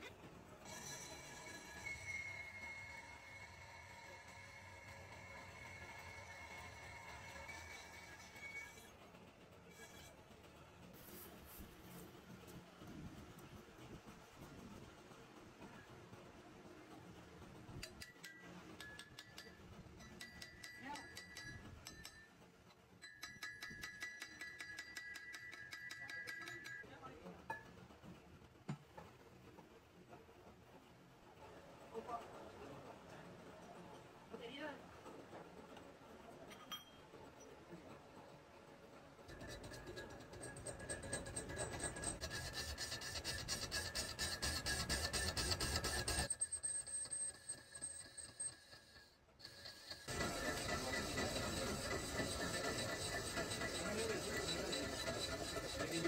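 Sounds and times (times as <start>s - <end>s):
steel chips clinking in metal hub: 17.8s - 22.4s, 23.0s - 26.8s, 39.3s - 42.4s
faint metallic ringing: 36.5s - 37.6s
metal lathe cutting: 49.4s - 56.0s.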